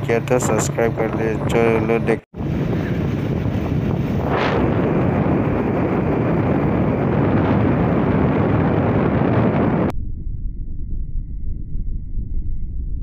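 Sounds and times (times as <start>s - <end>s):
wind buffeting microphone: 0.0s - 9.9s.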